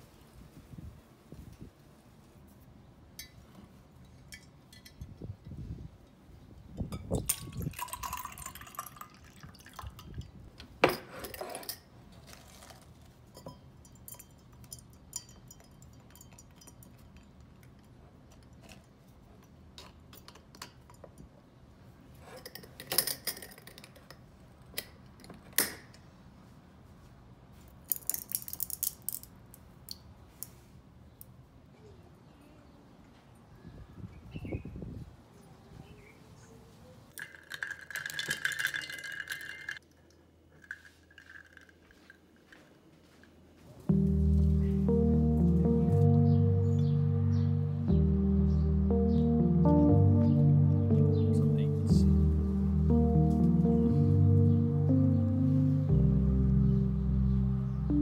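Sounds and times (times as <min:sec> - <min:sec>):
dishes and cutlery clinking: 0:03.2 - 0:05.2, 0:10.0 - 0:11.9, 0:13.3 - 0:21.4.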